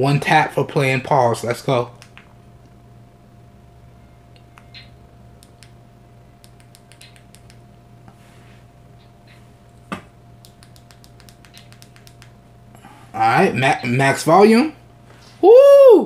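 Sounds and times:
low hum: 1.8 - 14.0
tinny music leaking from earbuds: 6.4 - 7.6, 10.4 - 12.4.

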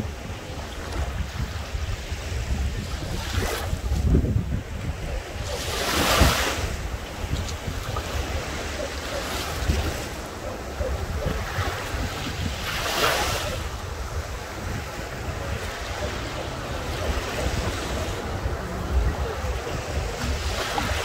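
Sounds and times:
rush of surf: 0.0 - 21.0
small waves breaking on shore: 0.0 - 21.0
wind buffeting microphone: 0.0 - 21.0.

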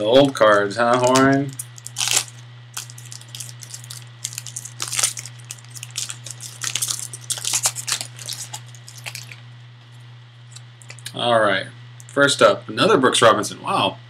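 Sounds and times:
steady low hum: 0.0 - 14.0
wrapper crinkling and rustling: 0.2 - 9.4.

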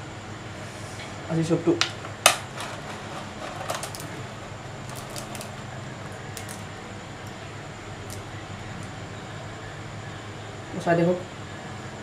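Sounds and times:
steady low hum: 0.0 - 12.0
crisp noodles crackling: 3.2 - 5.6.

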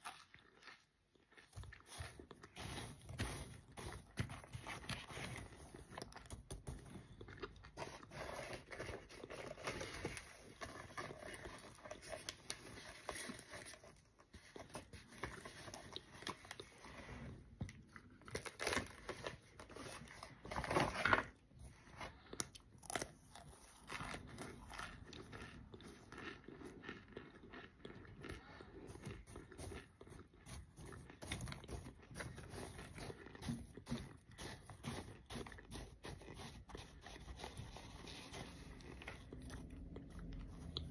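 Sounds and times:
crunchy chewing: 0.0 - 17.0, 17.7 - 40.9.

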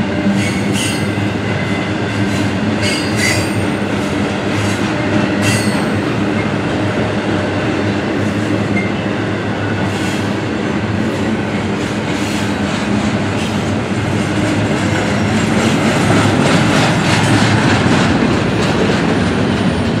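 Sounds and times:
freight train cars rolling past: 0.0 - 20.0
steel wheels clacking on rail joints: 11.1 - 20.0.

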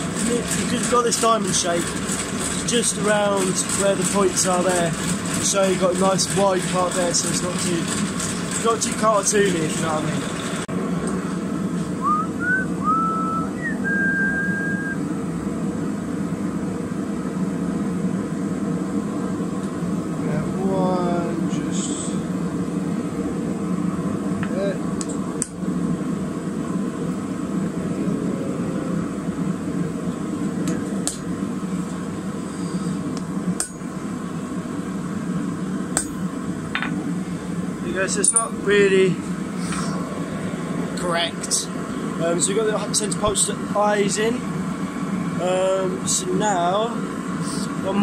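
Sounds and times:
forge burner rushing: 0.0 - 48.0
person whistling: 12.0 - 15.0
steady low roar: 25.6 - 33.5
hammer striking metal punch: 36.0 - 36.2.

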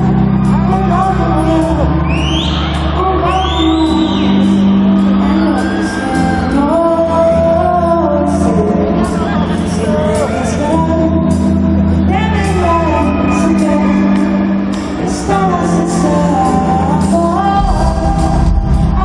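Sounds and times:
live pop band over loudspeakers: 0.0 - 19.0
woman singing into a microphone: 0.0 - 19.0.

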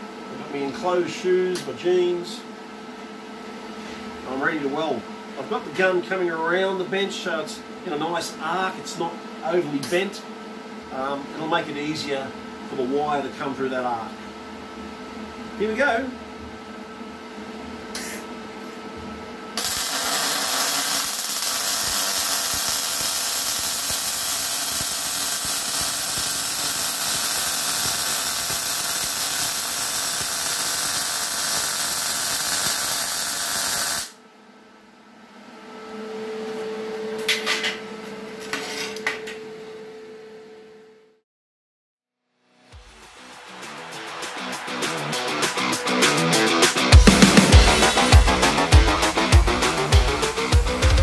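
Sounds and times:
welder hum: 17.6 - 34.2, 42.7 - 51.0
welding arc crackling and hissing: 19.6 - 34.2, 42.8 - 51.0.

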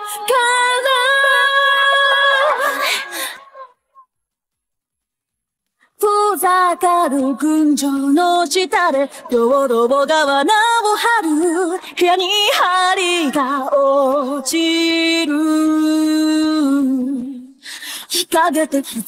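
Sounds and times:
woman singing unaccompanied: 6.0 - 17.5, 18.1 - 19.0.

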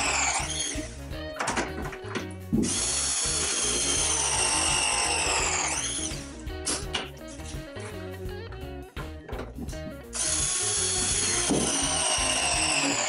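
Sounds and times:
press tool motor running: 0.0 - 0.9, 2.6 - 6.2, 10.2 - 13.0.

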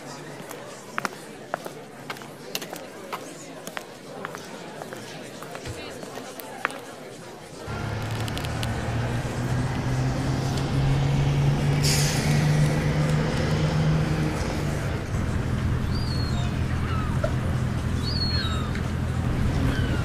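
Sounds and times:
idling vehicle engine hum: 7.6 - 20.0
short hiss: 11.8 - 12.2.

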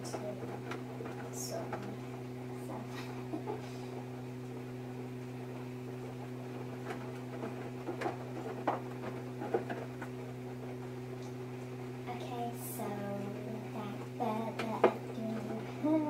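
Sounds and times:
washing machine drum hum: 0.0 - 16.0
laundry tumbling clicks and knocks: 6.4 - 10.9.

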